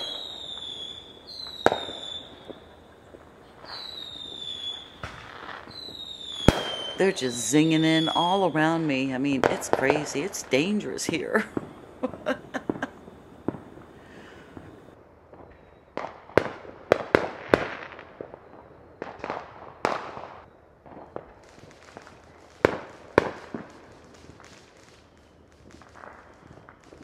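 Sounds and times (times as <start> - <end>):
fireworks banging and cracking: 0.0 - 27.0.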